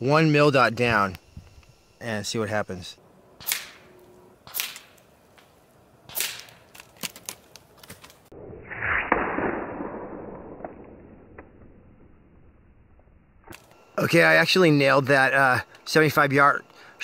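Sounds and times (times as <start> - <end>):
air rifle shots: 3.4 - 5.0, 6.1 - 6.7, 8.9 - 10.8.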